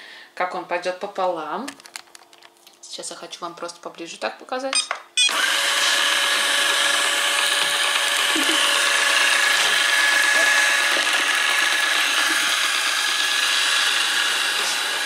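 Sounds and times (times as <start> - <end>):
robot vacuum running: 5.3 - 15.0.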